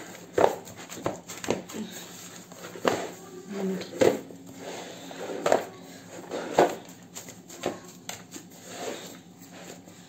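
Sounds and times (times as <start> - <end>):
hands thumping dough: 0.0 - 1.9, 6.5 - 8.5.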